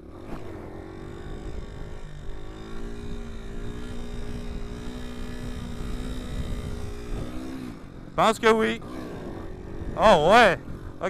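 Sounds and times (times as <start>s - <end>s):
wind rumbling on microphone: 0.0s - 7.7s
motorcycle engine pulling hard: 0.0s - 11.0s.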